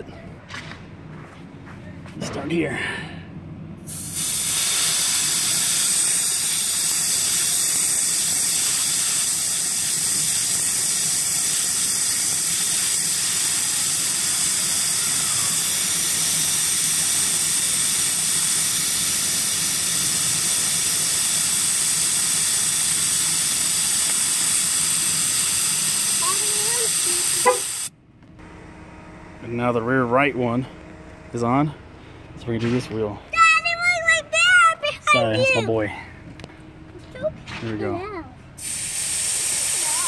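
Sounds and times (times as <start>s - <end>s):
air hissing from tire valve: 3.8s - 27.9s, 38.6s - 40.0s.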